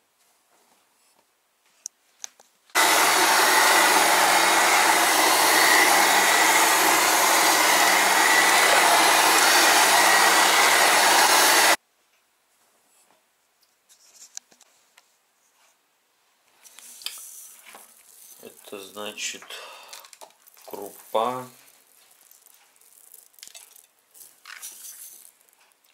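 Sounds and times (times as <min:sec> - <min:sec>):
electric hand mixer running: 0:02.8 - 0:11.8.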